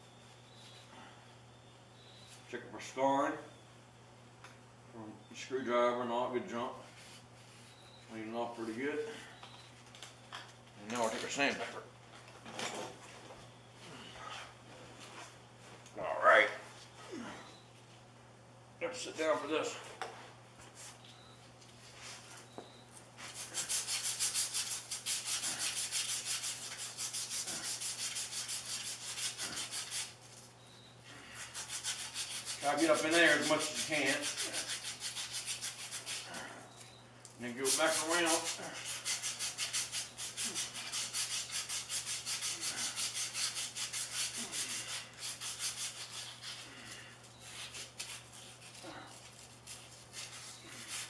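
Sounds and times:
emery cloth sanding metal shaft: 23.2s - 30.2s, 31.4s - 36.3s, 37.5s - 46.6s.

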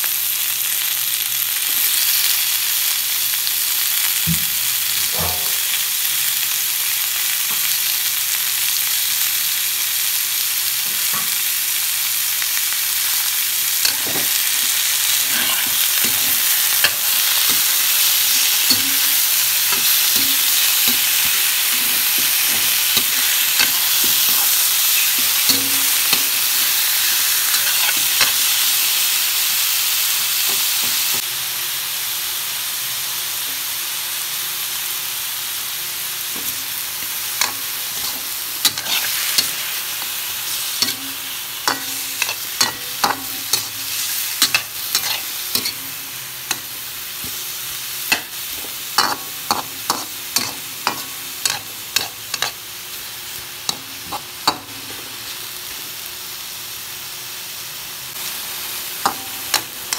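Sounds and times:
food sizzling in a pan: 0.0s - 59.9s
spatula scraping and knocking pan: 37.4s - 39.6s.

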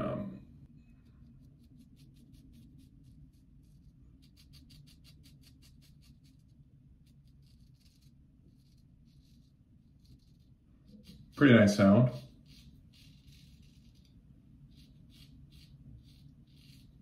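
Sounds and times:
razor cutting stubble: 14.7s - 17.0s.

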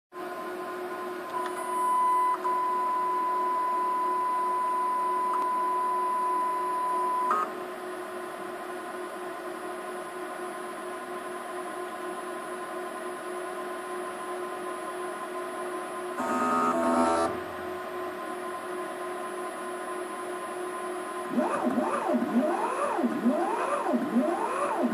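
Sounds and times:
electrical hum: 16.1s - 19.6s, 20.2s - 24.9s
electric motor whining: 16.2s - 17.6s
multi-tone buzz: 16.2s - 17.8s.

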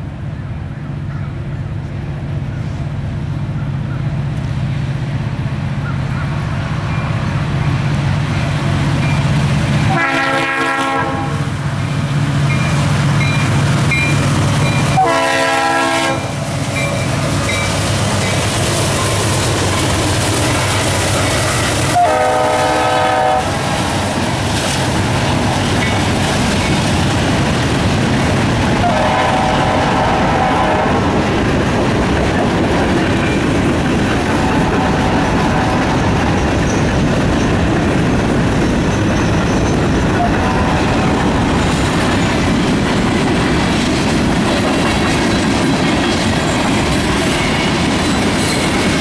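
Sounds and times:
train wheels clattering on rail: 2.6s - 49.0s
locomotive air horn blasts: 9.9s - 11.5s, 14.9s - 16.4s, 21.8s - 23.7s, 28.8s - 31.0s, 40.2s - 41.1s.

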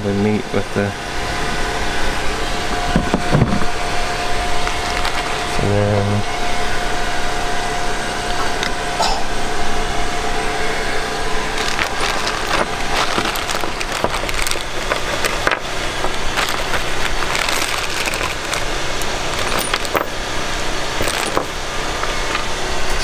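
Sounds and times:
low background rumble: 0.0s - 23.0s
plastic bag crinkling: 4.6s - 5.4s, 11.4s - 20.3s, 20.9s - 22.6s.

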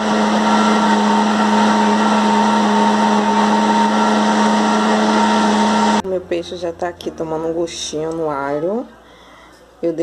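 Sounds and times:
blender running: 0.0s - 6.0s.

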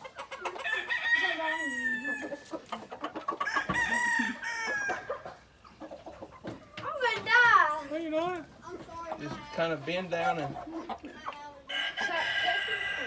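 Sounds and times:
rooster crowing: 3.4s - 5.1s, 11.7s - 13.0s.

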